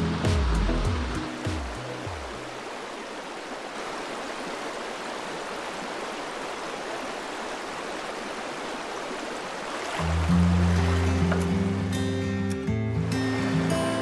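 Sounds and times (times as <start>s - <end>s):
background music: 0.0s - 2.5s, 10.0s - 14.0s
creek water rushing: 0.0s - 14.0s.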